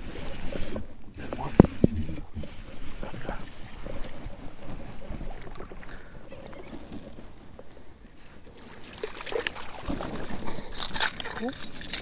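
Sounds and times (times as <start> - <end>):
fish splashing at the surface: 8.6 - 12.0.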